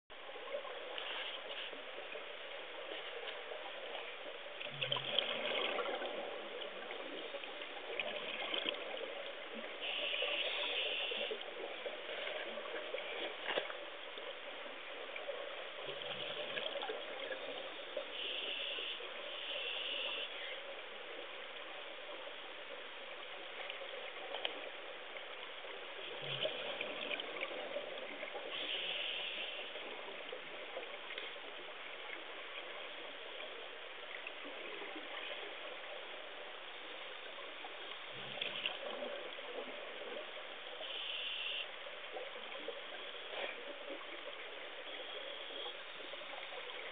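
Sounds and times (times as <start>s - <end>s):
underwater watery hiss: 0.8s - 2.0s, 9.8s - 13.0s, 18.0s - 20.6s, 28.3s - 30.3s, 40.8s - 41.8s.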